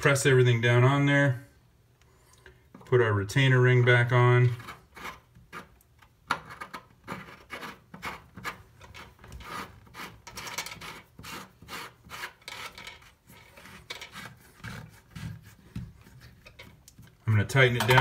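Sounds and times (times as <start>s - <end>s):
metal scraping on metal: 6.4s - 16.8s, 17.5s - 18.0s.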